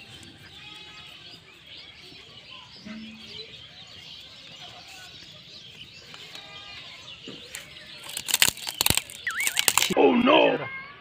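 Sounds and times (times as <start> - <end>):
paper crackling: 7.5 - 10.0.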